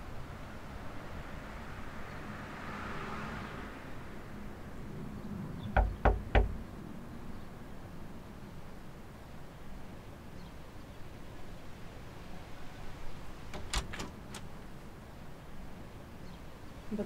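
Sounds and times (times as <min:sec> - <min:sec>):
fist knocking on door: 0:05.8 - 0:06.6.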